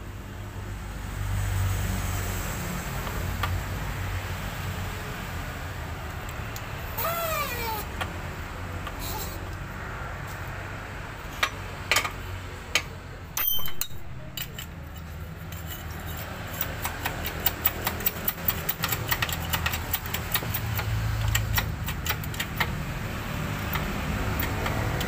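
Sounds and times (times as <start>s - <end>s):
metal parts clicking and clinking: 12.8s - 22.7s.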